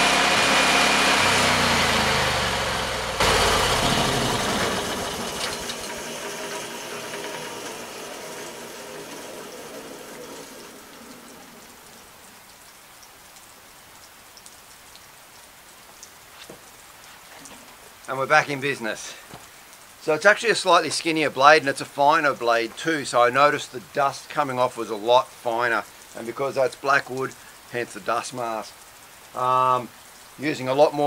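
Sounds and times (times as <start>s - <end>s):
sawmill engine and blade running: 0.0s - 12.2s
steady rain: 0.0s - 31.0s
water drips: 3.6s - 31.0s.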